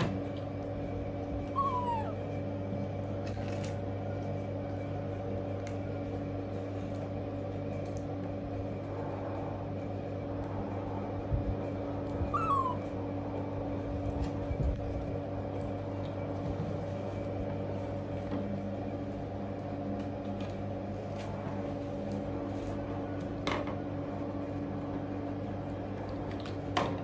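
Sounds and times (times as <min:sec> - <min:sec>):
steady hum: 0:00.0 - 0:27.0
baby monkey squeak: 0:01.5 - 0:02.2, 0:12.3 - 0:12.9.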